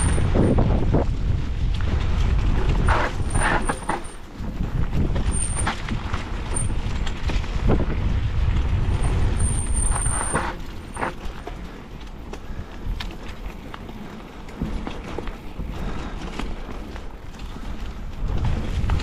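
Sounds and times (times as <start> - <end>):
rattling scrapes over bumps: 0.0 - 1.1, 1.8 - 12.0
wind and tyres on dirt: 0.0 - 19.0.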